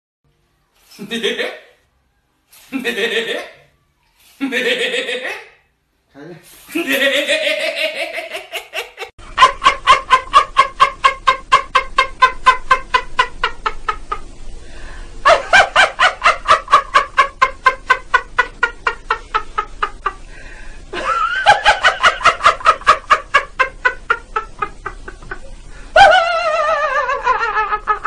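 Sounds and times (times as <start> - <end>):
man laughing uncontrollably: 6.7 - 13.8.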